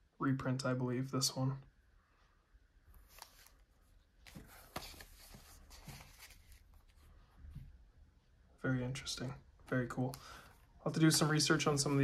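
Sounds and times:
paper prints rustling: 2.9s - 7.3s, 10.3s - 12.0s.

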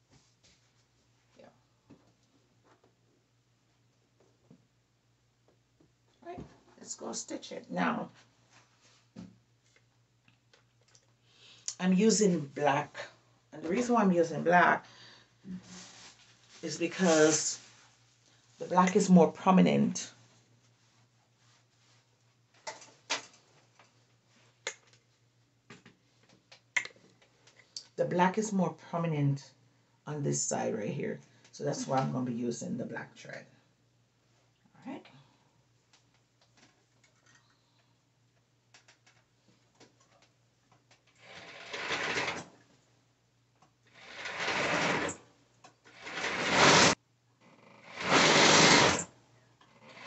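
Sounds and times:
overlock machine stitching fabric: 41.2s - 42.5s, 44.0s - 45.2s, 45.9s - 47.0s, 47.8s - 49.1s, 49.8s - 50.0s.

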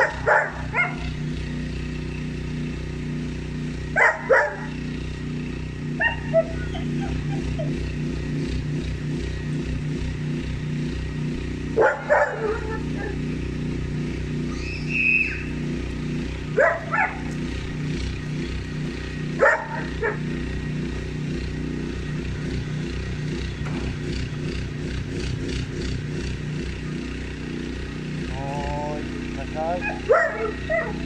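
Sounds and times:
dog barking: 0.0s - 1.2s, 4.0s - 4.8s, 6.0s - 7.8s, 11.8s - 13.2s, 16.6s - 17.3s, 19.4s - 20.3s, 29.8s - 31.0s.

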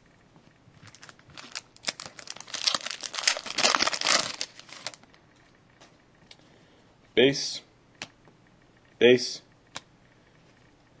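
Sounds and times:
foil wrapper crinkling and tearing: 0.9s - 5.1s.

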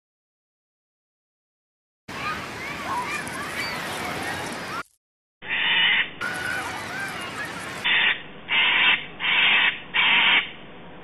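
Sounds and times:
crow cawing: 7.8s - 10.5s.

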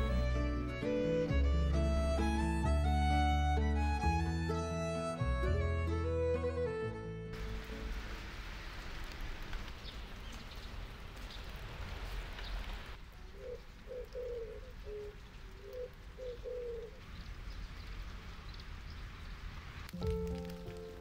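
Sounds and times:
steady rain: 7.3s - 21.0s
dove cooing: 13.2s - 17.0s.

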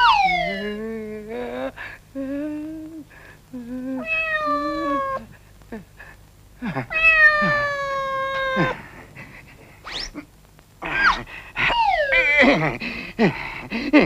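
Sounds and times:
cartoon cat meowing: 0.0s - 0.8s, 4.0s - 5.2s, 6.9s - 8.8s, 11.7s - 12.5s.

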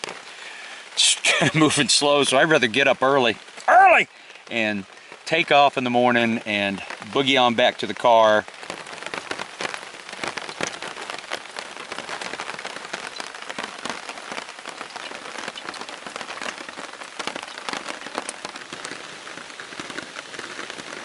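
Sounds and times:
drizzle tapping on a nylon tarp: 6.4s - 21.0s.

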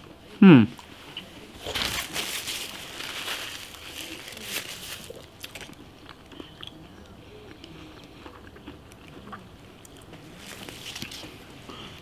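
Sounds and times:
person chewing bread: 0.8s - 12.0s
close crinkling and rustling: 1.6s - 5.8s, 10.2s - 11.5s.

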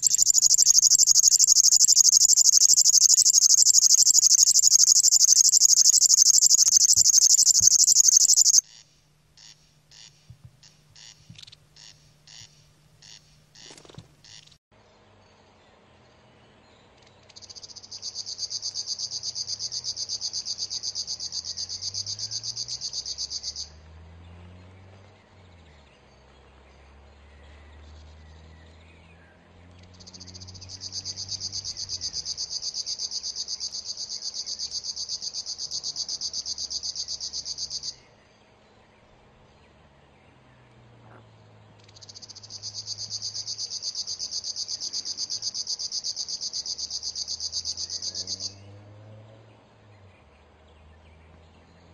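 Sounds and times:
bird reeling buzzing song: 0.0s - 14.6s, 17.3s - 23.8s, 29.9s - 38.1s, 41.8s - 48.8s.

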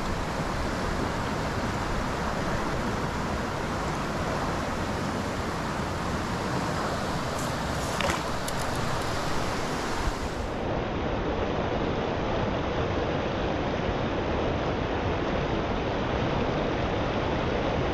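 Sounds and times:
creek water rushing: 0.0s - 10.7s
small clicks: 7.4s - 9.2s.

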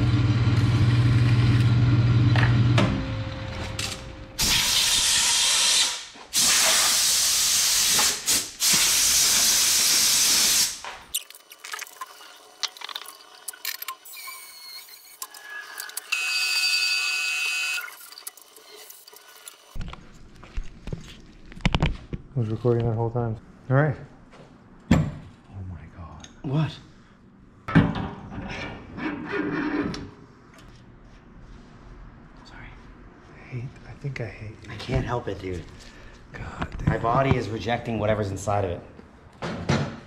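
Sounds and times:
short whirring tone: 14.1s - 18.0s.

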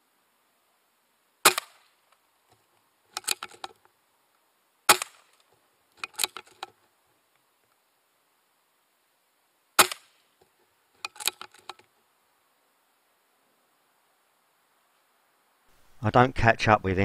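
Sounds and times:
air rifle shots: 1.4s - 1.9s, 4.9s - 5.4s, 9.8s - 10.2s
small mechanical clicks: 3.1s - 3.8s, 4.9s - 6.8s, 11.0s - 11.8s.

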